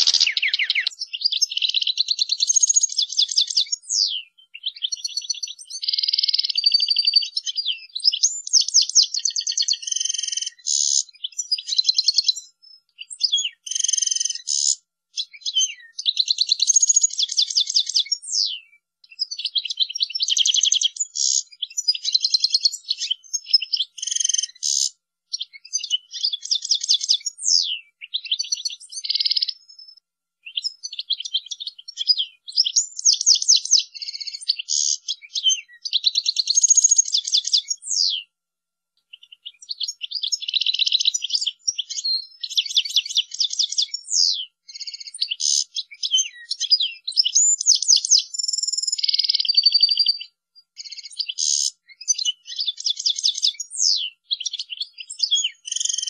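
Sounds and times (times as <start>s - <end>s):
goldfinch singing: 0.0s - 18.5s.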